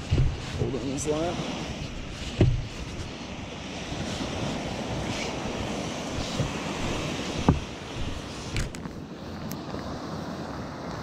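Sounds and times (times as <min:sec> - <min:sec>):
waves washing up a beach: 0:00.0 - 0:11.0
brief thump: 0:02.4 - 0:02.7.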